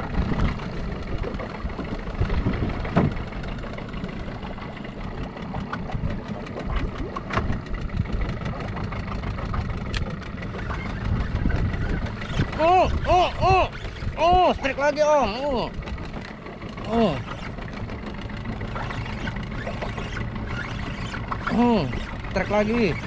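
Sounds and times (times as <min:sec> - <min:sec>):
boat engine low rumble: 0:00.0 - 0:23.0.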